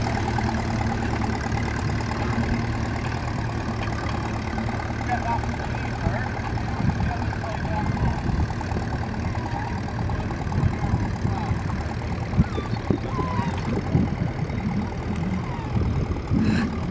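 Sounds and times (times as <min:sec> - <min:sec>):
tractor engine running under load: 0:00.0 - 0:16.9
wind rumbling on microphone: 0:06.0 - 0:16.9.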